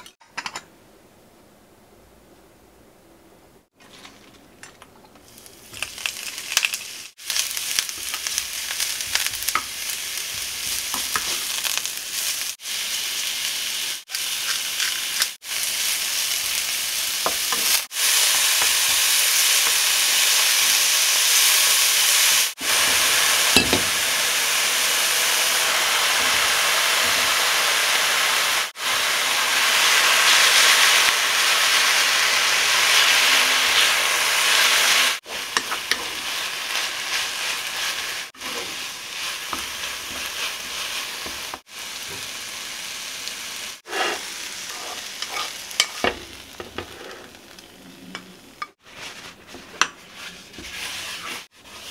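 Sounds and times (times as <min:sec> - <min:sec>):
vegetables sizzling in frying pan: 0:05.2 - 0:51.9
wooden spatula stirring: 0:48.8 - 0:51.9.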